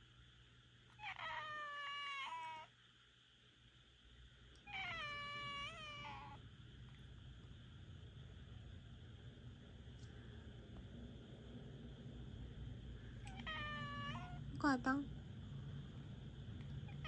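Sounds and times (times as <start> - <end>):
cat meowing: 1.0 - 2.7, 4.6 - 6.4, 13.2 - 14.4.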